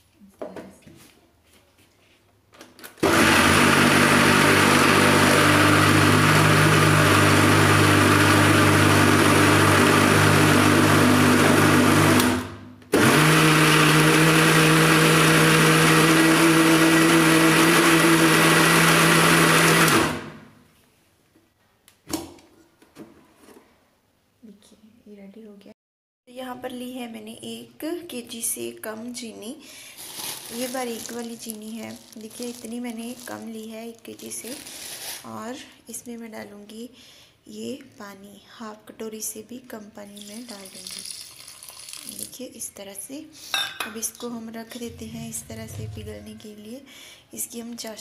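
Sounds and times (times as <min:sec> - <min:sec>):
mixer grinder motor running: 0:03.0 - 0:20.4.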